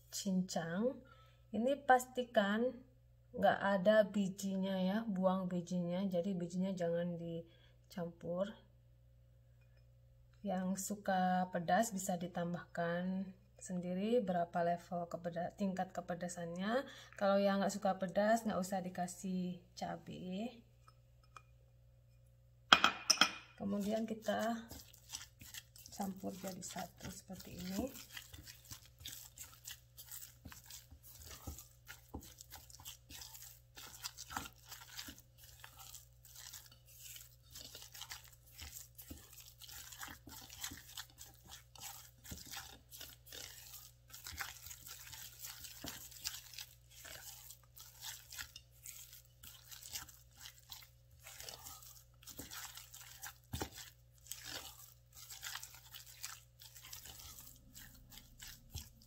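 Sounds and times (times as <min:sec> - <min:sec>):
dough crunching and squishing: 0:23.3 - 0:59.0.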